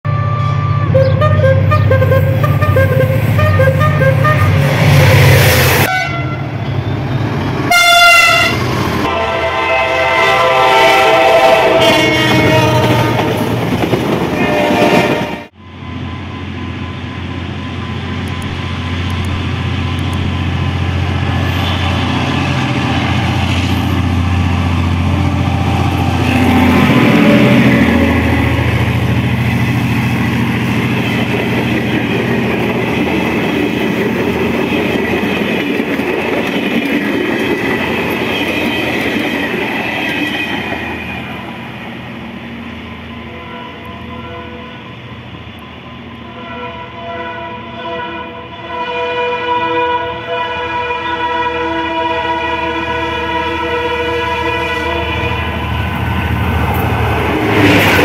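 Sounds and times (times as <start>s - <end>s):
locomotive horn blasts: 0.1s - 4.6s, 5.8s - 6.6s, 7.7s - 13.5s, 14.3s - 17.0s, 25.0s - 28.9s, 43.2s - 45.0s, 46.2s - 55.7s
train passing: 0.1s - 58.0s.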